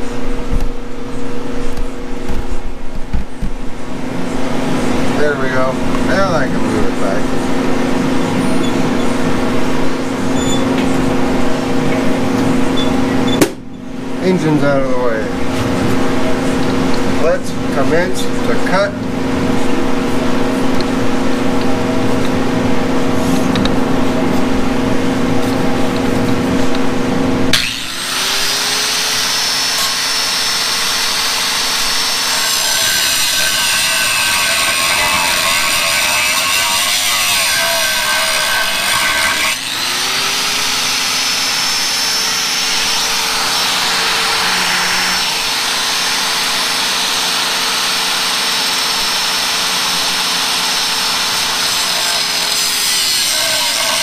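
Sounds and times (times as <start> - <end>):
angle grinder cutting metal: 27.5 - 54.0.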